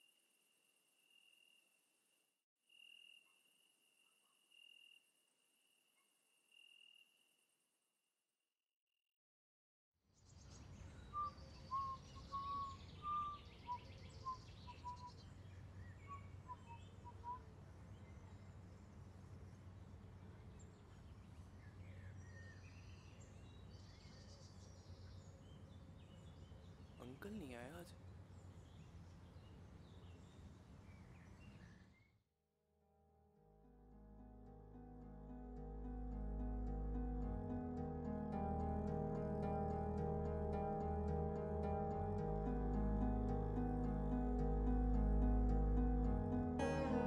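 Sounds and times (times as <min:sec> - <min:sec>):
faint bird chirps: 0:00.0 - 0:07.5, 0:10.2 - 0:32.2.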